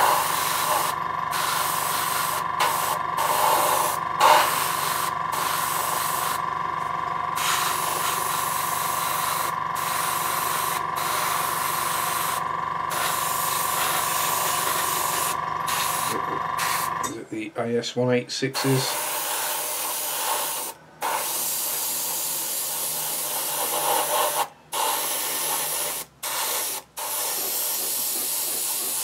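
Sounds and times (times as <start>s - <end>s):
airbrush hissing: 0.0s - 6.5s, 7.4s - 17.0s, 18.6s - 29.0s
compressor whine and chug: 0.0s - 17.2s.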